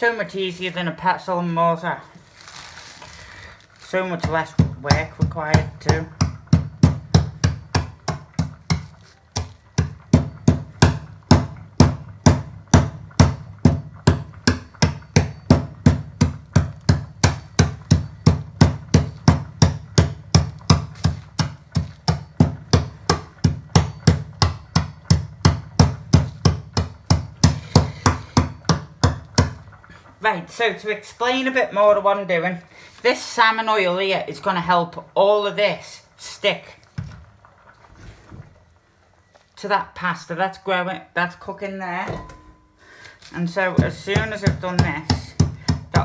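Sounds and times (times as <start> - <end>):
metal bar crushing kibble: 2.5 - 30.0.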